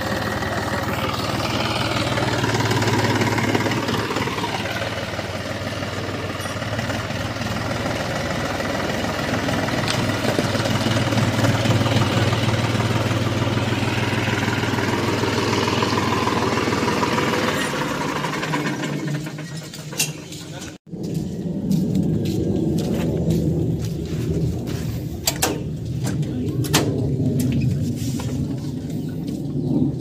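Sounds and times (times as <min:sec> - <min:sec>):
tractor diesel engine running: 0:00.0 - 0:21.6
tires on loose stones: 0:00.0 - 0:30.0.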